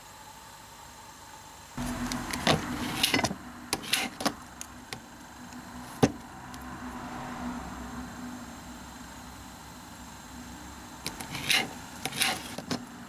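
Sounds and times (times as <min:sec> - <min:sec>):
low steady hum: 0:00.0 - 0:13.0
scrapes on a steel plate: 0:02.3 - 0:04.4, 0:11.1 - 0:12.8.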